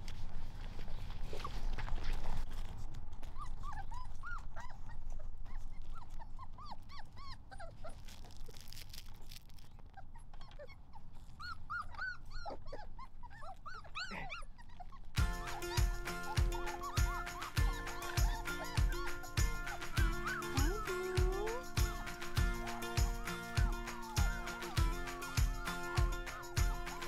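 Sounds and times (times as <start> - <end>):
puppies whimpering and squeaking: 3.2 - 27.0
background music with a beat: 15.2 - 27.0.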